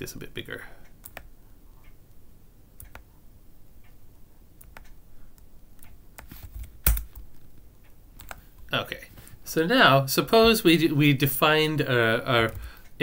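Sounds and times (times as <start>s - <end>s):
computer mouse clicks: 0.8s - 2.0s, 2.8s - 3.2s, 4.6s - 8.7s.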